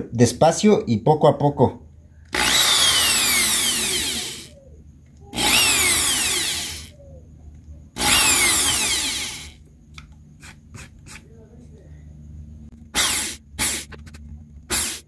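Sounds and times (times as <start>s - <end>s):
electric drill whining: 2.3s - 4.6s, 5.3s - 7.0s, 8.0s - 9.6s, 12.9s - 13.9s, 14.7s - 15.0s.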